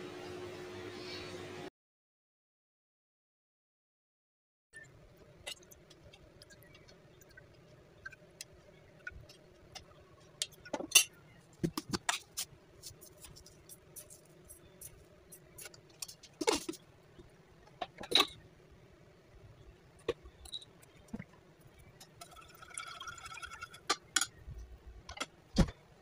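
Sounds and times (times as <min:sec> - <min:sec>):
faint steady hum: 0:00.0 - 0:01.7.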